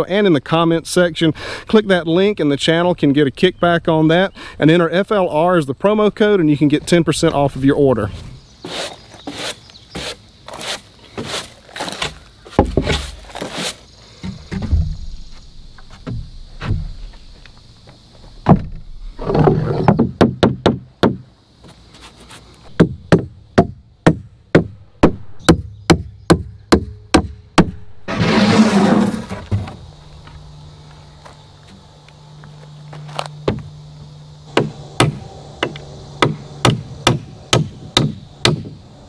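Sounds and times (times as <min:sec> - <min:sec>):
scraping noise: 0:28.1 - 0:29.6.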